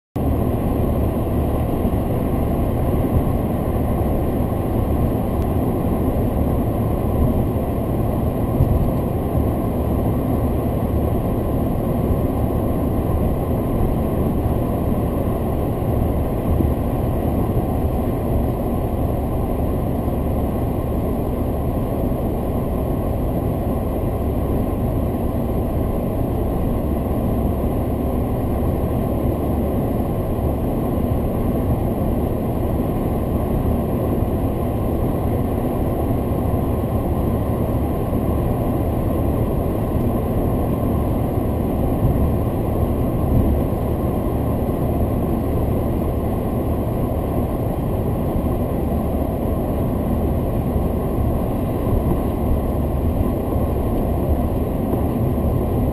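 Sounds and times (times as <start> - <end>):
car cabin road noise: 0.2 - 55.9.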